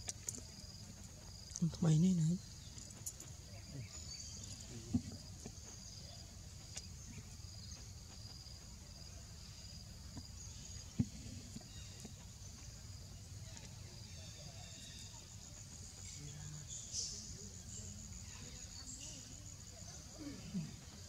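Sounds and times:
insects chirping: 0:00.0 - 0:21.0
soft thumps: 0:04.8 - 0:05.6.

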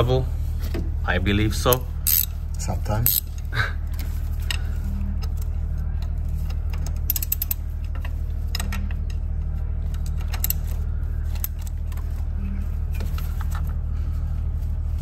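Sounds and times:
steady low hum: 0:00.0 - 0:15.0
hand ratchet clicking: 0:01.7 - 0:02.3, 0:03.0 - 0:03.4, 0:06.9 - 0:07.6.

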